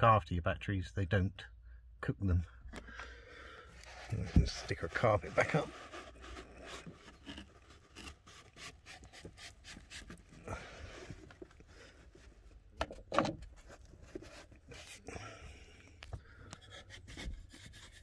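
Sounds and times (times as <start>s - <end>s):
hands rubbing carpet lining: 3.8s - 10.4s.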